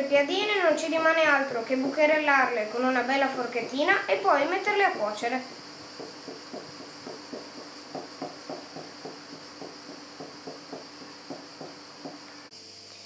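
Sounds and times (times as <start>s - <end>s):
fork tines tapping dough on board: 6.0s - 12.2s.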